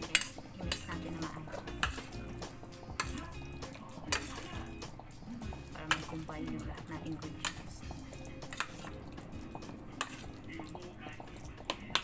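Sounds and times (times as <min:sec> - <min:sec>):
metal spoon scraping steel bowl: 0:00.0 - 0:12.0.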